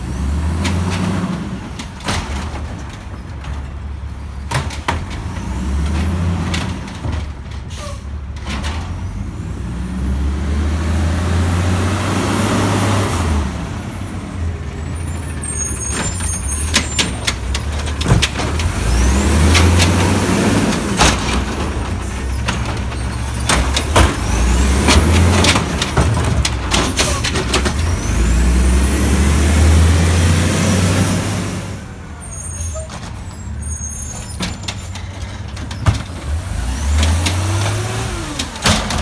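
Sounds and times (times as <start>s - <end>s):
engine revving: 9.6s - 13.6s, 28.0s - 31.8s, 36.2s - 38.7s.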